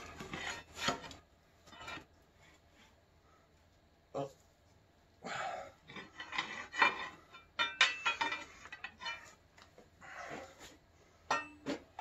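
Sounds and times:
metal scraping: 0:00.0 - 0:02.2, 0:05.9 - 0:09.4
metal tools clanking: 0:05.9 - 0:09.4.

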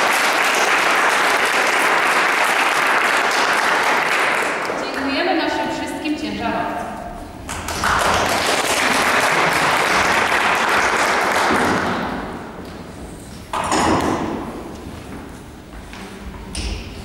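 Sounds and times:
small audience clapping: 0:00.0 - 0:05.1, 0:07.4 - 0:12.8.

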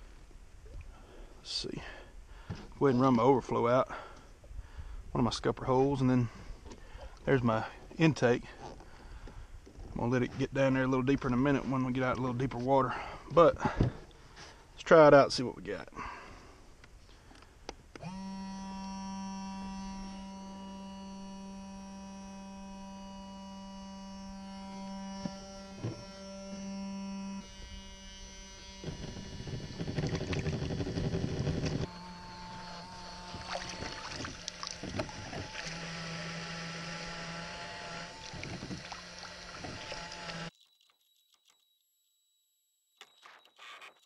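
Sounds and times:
electric pump humming: 0:17.2 - 0:40.6
water sloshing and knocking: 0:33.3 - 0:36.3.

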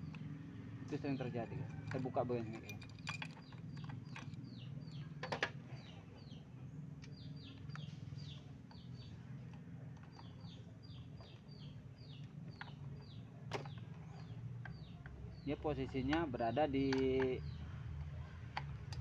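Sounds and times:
small birds chirping: 0:00.0 - 0:19.0
metal tool clicks: 0:15.8 - 0:19.0.

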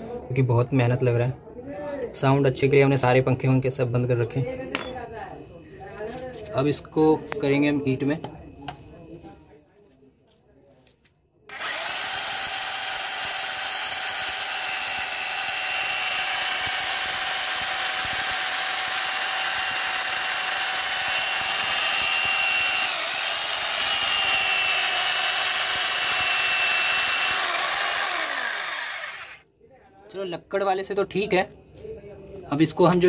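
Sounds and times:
electric drill grinding into brick: 0:11.5 - 0:29.4.

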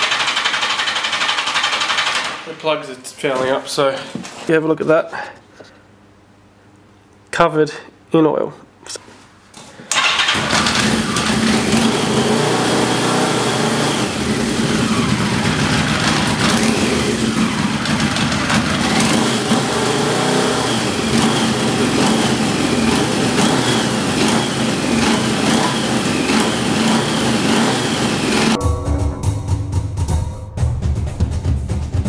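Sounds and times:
motorcycle engine running: 0:00.0 - 0:02.3, 0:10.0 - 0:29.4.

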